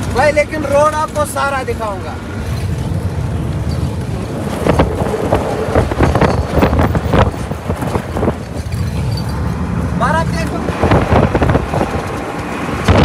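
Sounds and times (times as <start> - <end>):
truck engine rumbling: 0.0 - 13.0
wind buffeting microphone: 2.2 - 13.0
sharp knocks and rattles: 5.8 - 9.7.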